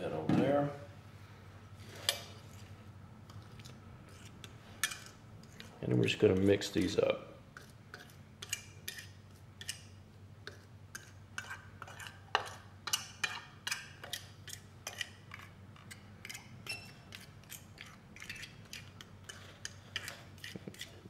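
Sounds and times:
fork scraping a ceramic plate: 3.3 - 6.6, 7.6 - 21.0.

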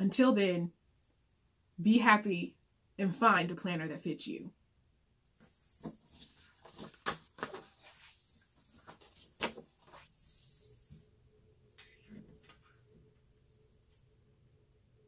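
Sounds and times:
paper rustling: 5.4 - 11.0.

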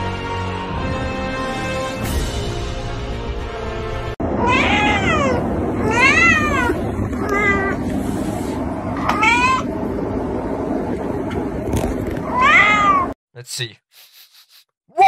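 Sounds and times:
cat meowing: 4.4 - 7.8, 9.0 - 9.7, 12.3 - 13.2.

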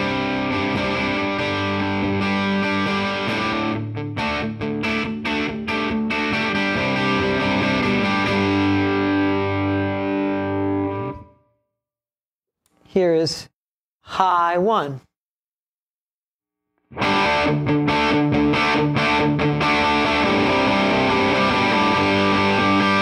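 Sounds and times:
overdriven electric guitar chords: 0.0 - 11.5, 16.9 - 23.0.

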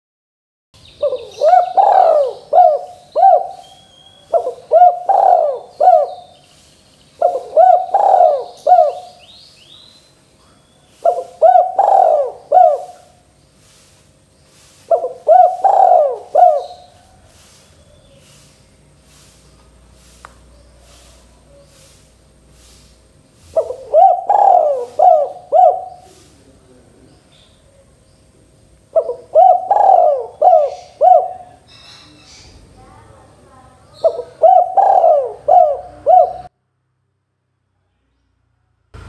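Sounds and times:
small birds chirping: 0.8 - 36.5
dove cooing: 1.0 - 6.4, 7.2 - 9.3, 10.4 - 13.3, 14.8 - 18.4, 23.4 - 27.0, 28.9 - 31.8, 33.9 - 36.5.

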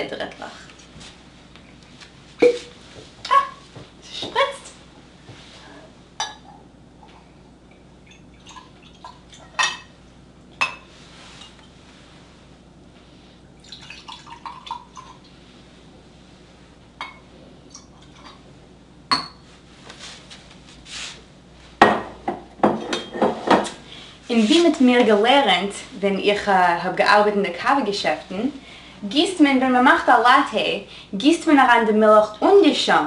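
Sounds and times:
glass mugs and bottle clinking: 6.2 - 6.6, 7.7 - 9.9, 19.1 - 19.4
liqueur pouring into glass mug: 13.6 - 15.3.

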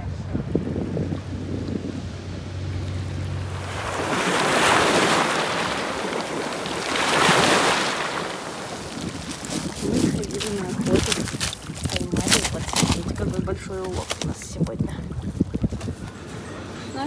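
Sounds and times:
waves washing over pebbles: 3.2 - 15.5.

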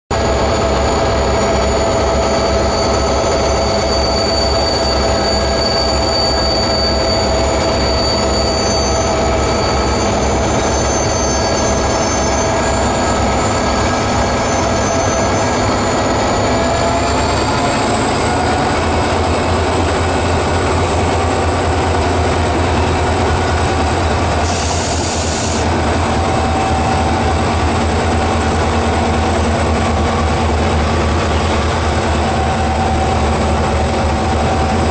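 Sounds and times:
diesel locomotive engines droning: 0.1 - 34.9.

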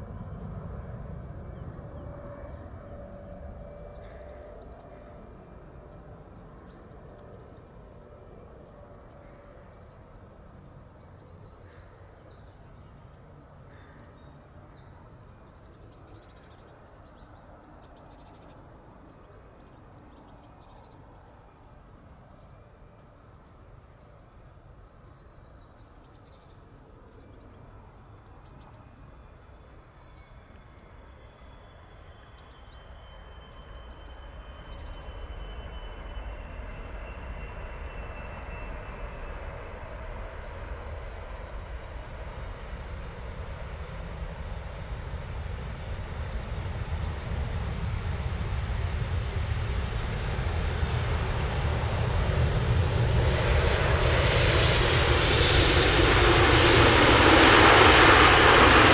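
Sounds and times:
jet engines rumbling: 0.0 - 11.5, 28.8 - 58.9
small birds chirping: 0.6 - 41.5, 43.6 - 48.8
thin steady whine: 27.6 - 43.4.

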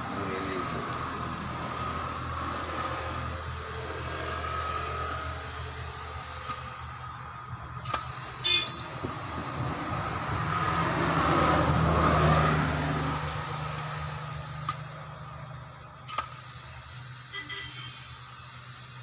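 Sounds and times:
compressed air hissing: 0.0 - 6.9, 7.8 - 11.8, 12.4 - 15.0, 16.1 - 19.0
steady low hum: 0.0 - 12.0
sharp valve click: 16.1 - 16.4.

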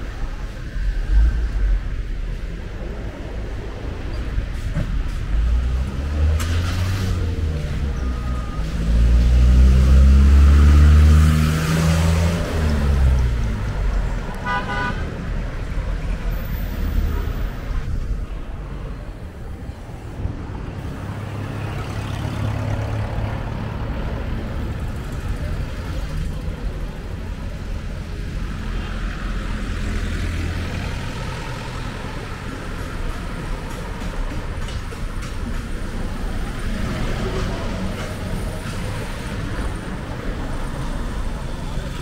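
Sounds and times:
traffic rumble: 0.0 - 42.0
vehicle engine passing: 5.4 - 13.7
car horn toot: 14.4 - 15.1.

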